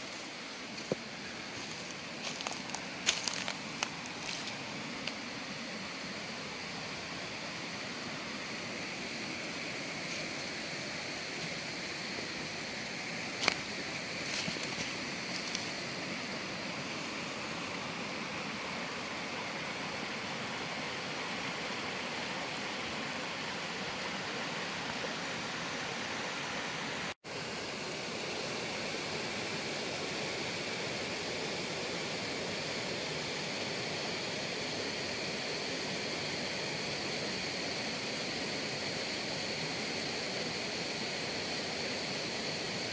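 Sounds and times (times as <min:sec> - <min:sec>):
stream rushing over stones: 0:00.0 - 0:27.2.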